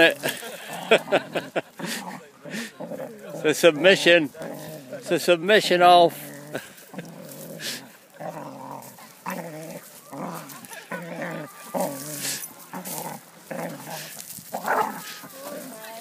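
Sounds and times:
small dogs growling: 0:00.0 - 0:16.0
scuffling on gravel: 0:06.1 - 0:16.0.

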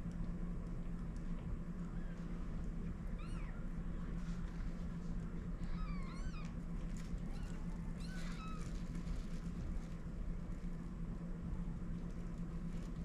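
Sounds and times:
kittens mewing: 0:03.2 - 0:03.6, 0:05.6 - 0:06.6, 0:07.3 - 0:08.9.

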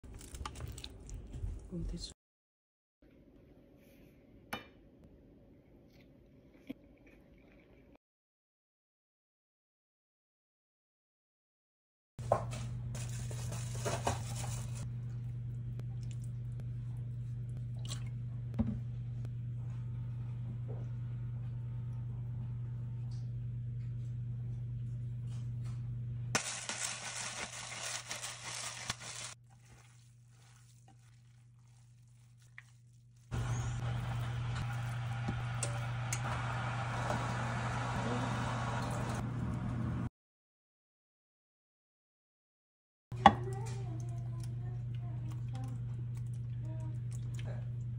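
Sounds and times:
kitchen handling noises: 0:12.2 - 0:14.8.

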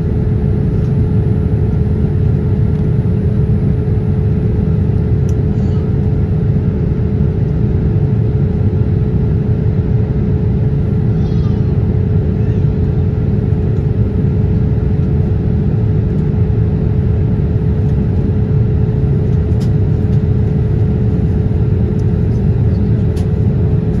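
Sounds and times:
airliner cabin engine rumble: 0:00.0 - 0:24.0.

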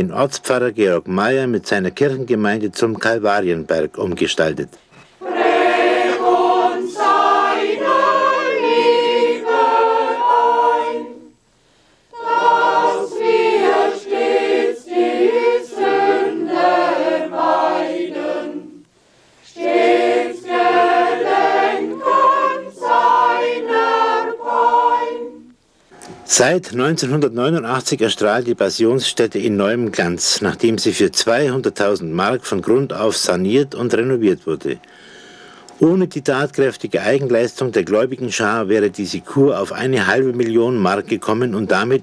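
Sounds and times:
congregation singing a hymn: 0:05.2 - 0:11.3, 0:12.1 - 0:25.5.

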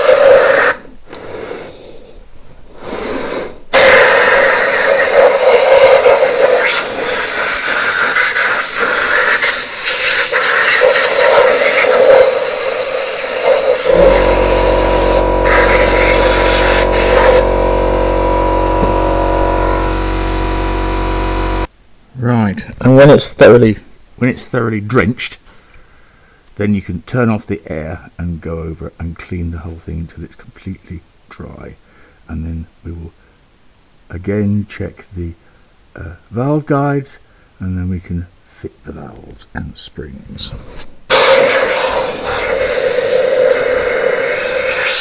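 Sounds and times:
spray gun hissing: 0:11.9 - 0:17.4
air compressor droning: 0:13.3 - 0:21.7.

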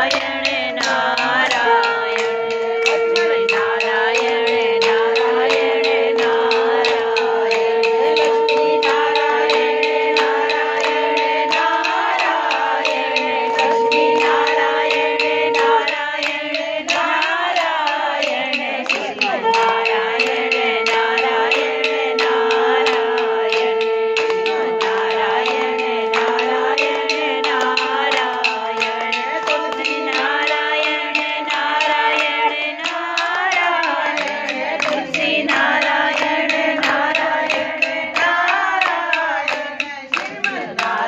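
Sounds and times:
steady held tone: 0:00.0 - 0:39.5
group singing devotional song: 0:00.0 - 0:41.0
sharp percussive strikes: 0:00.0 - 0:41.0.

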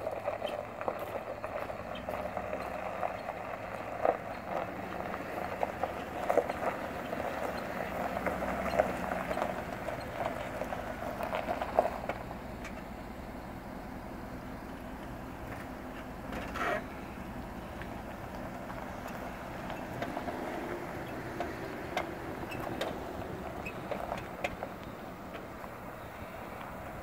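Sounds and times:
footsteps crunching on gravel: 0:00.1 - 0:12.2.

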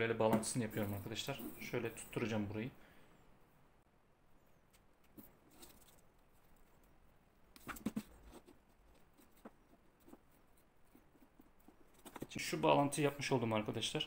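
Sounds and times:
wires rustling and clicking: 0:04.7 - 0:12.6.

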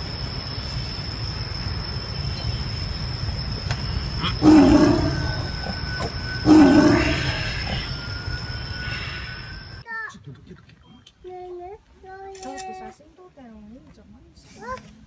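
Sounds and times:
tiger roaring: 0:04.2 - 0:08.0.

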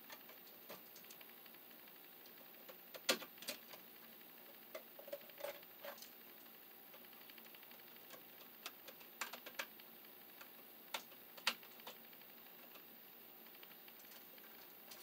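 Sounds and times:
hand tools and wire clicking: 0:07.2 - 0:09.8.

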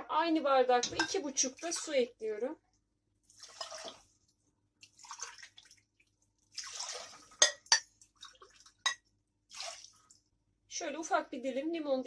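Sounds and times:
water pouring into metal pot: 0:03.3 - 0:04.1, 0:04.8 - 0:10.1.

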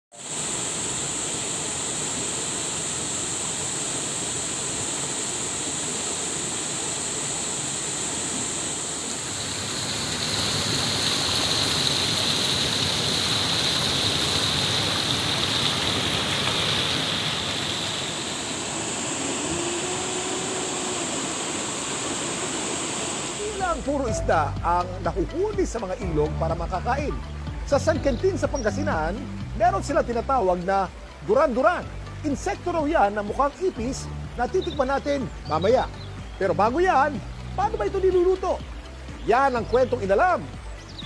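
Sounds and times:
river water rushing: 0:00.2 - 0:41.0
water pouring over boulders: 0:08.9 - 0:24.0.

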